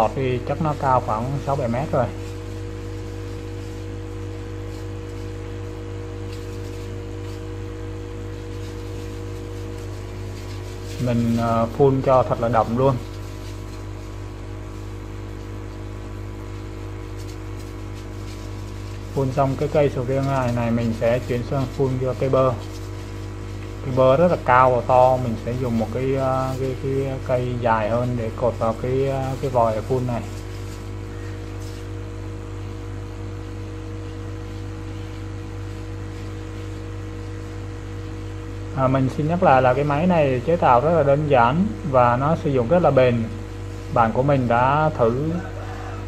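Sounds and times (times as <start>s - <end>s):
steady electrical hum: 0.0s - 46.0s.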